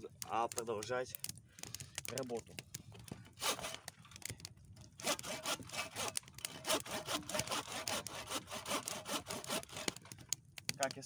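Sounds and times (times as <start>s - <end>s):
hand saw cutting wood: 3.4s - 3.9s, 5.0s - 10.1s.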